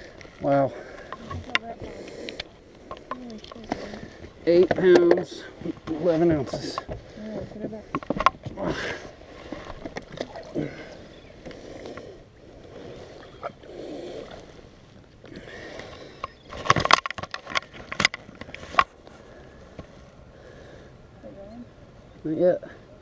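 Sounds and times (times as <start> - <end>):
rustling and knocking in boat: 2.8 - 13.6, 14.3 - 20.1.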